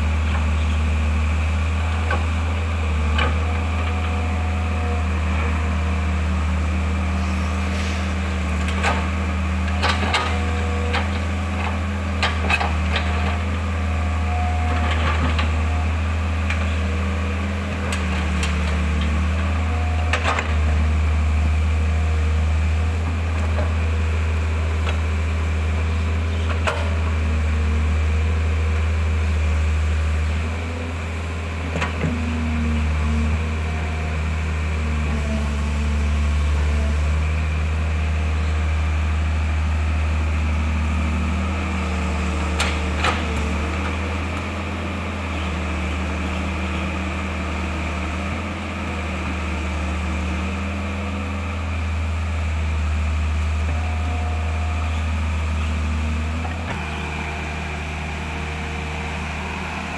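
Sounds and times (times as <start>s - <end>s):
excavator diesel engine running: 0.0s - 59.9s
hydraulic whines: 7.1s - 9.1s, 53.0s - 59.9s.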